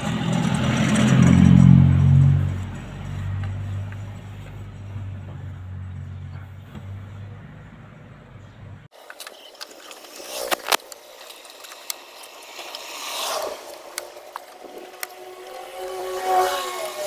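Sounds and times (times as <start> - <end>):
rising whine: 10.2 - 17.0.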